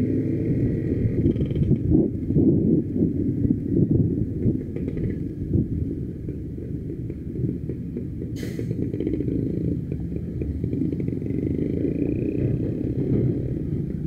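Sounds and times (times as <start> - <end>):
motorcycle engine rumbling: 0.0 - 14.0
wind: 0.0 - 14.0
short hiss: 8.4 - 8.8.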